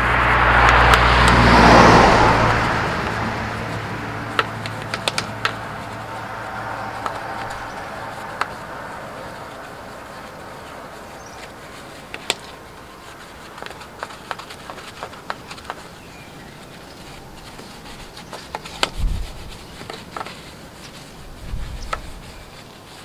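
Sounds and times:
low rumbles: 0.0 - 11.8
brush scrubbing a wheel: 0.0 - 23.0
brush knocking against metal rim: 0.5 - 22.5.

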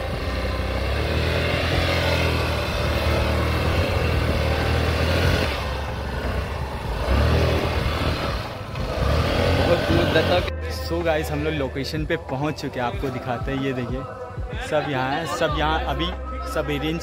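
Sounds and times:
scooter engine revving: 0.0 - 10.6.

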